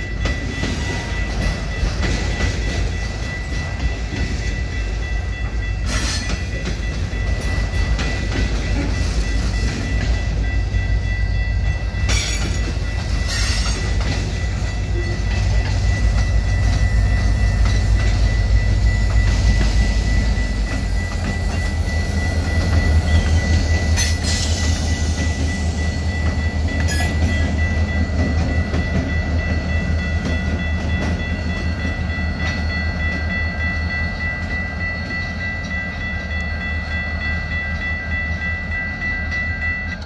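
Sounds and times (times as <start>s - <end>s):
diesel locomotives rumbling: 0.0s - 40.0s
level crossing warning bell: 0.0s - 40.0s.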